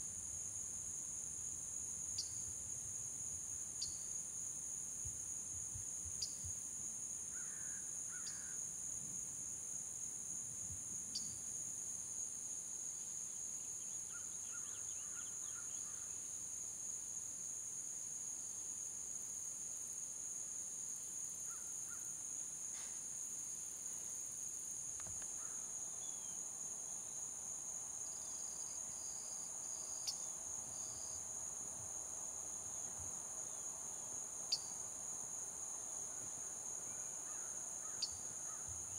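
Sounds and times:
high-pitched insect chorus: 0.0 - 38.9.

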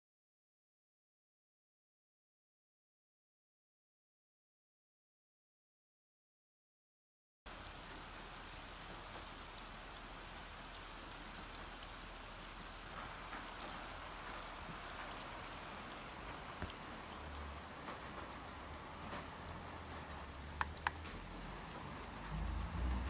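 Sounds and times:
light ticks: 20.5 - 21.3.

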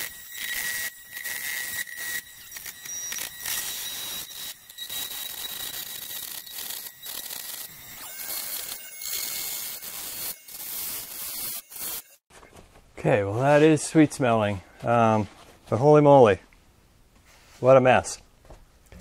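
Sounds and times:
multi-tool sawing metal can: 0.0 - 12.2.

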